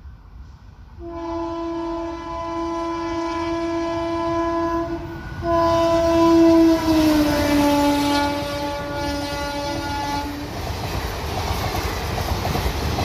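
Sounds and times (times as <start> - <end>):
train horn long note: 1.0 - 10.6.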